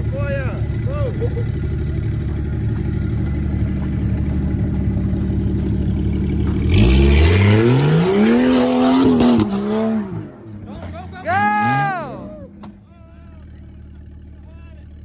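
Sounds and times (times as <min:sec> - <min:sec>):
engine revving: 0:01.9 - 0:12.8.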